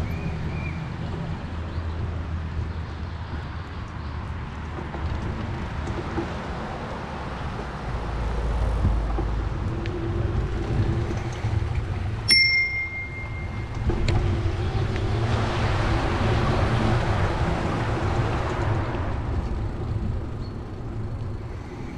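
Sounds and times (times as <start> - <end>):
low rumble of riding: 0.0 - 21.9
passing vehicle: 0.0 - 21.9
bicycle bell ring: 12.3 - 13.8.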